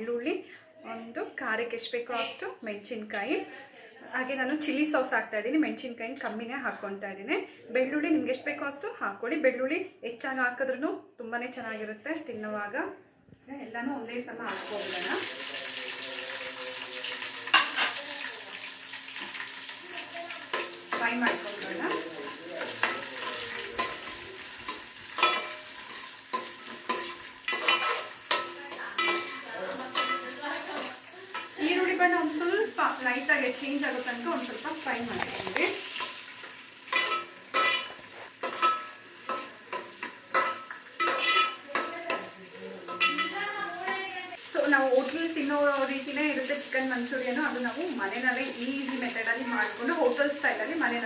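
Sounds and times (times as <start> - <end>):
vegetables sizzling in oil: 14.4 - 51.0
spoon stirring in a pan: 14.6 - 32.0, 33.8 - 45.2.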